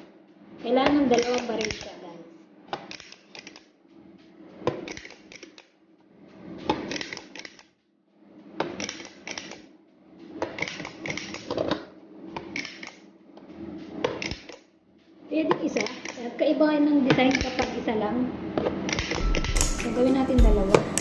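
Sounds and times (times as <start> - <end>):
cookie press clicking: 12.4 - 13.0.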